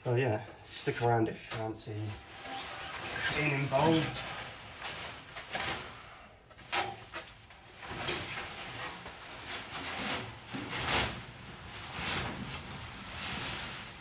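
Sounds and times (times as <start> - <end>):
fabric car cover swishing: 2.2 - 5.8, 7.9 - 14.0.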